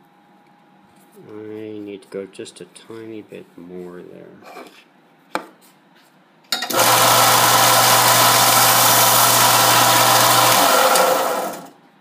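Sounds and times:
belt sander grinding metal: 6.7s - 11.7s.

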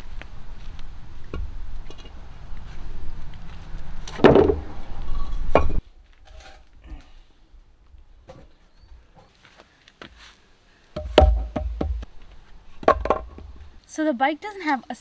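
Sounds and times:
loud thump: 11.0s - 12.1s.

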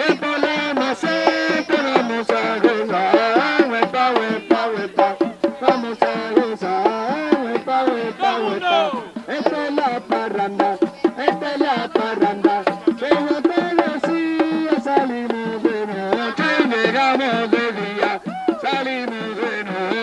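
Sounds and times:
hand frame drums: 0.0s - 20.0s
voices singing: 0.0s - 20.0s.

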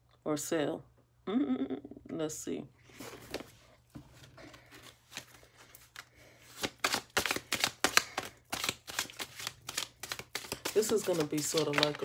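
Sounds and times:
cards being shuffled: 2.9s - 12.0s.

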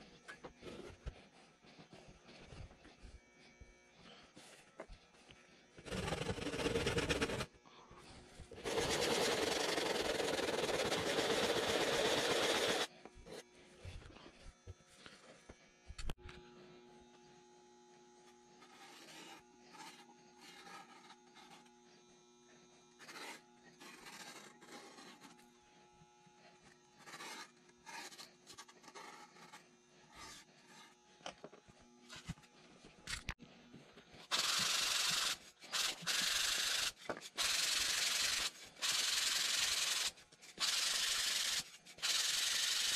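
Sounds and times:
sanding block rasping on foam: 5.8s - 7.5s, 8.6s - 12.9s, 23.0s - 25.4s.

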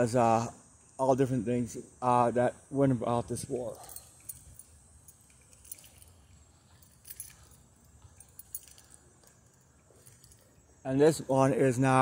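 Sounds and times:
keys jingling: 3.5s - 10.6s.

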